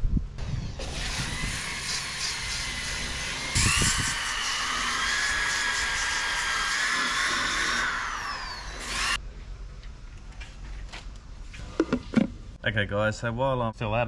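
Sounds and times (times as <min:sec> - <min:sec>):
power sander whining: 0:00.6 - 0:09.2.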